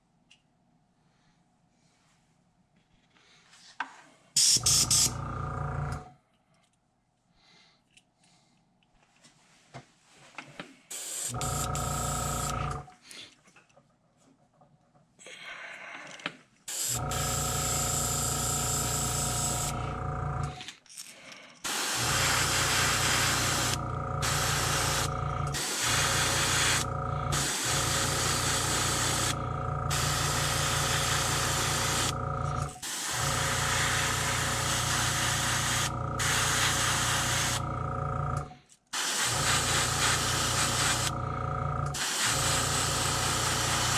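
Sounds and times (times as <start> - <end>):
airbrush hissing in spurts: 4.4 - 5.1, 10.9 - 11.8, 16.7 - 17.8, 21.6 - 37.6, 39.0 - 41.2, 41.9 - 43.9
compressor pulsing hum: 4.4 - 6.2, 10.9 - 13.0, 16.7 - 20.7, 21.7 - 43.9.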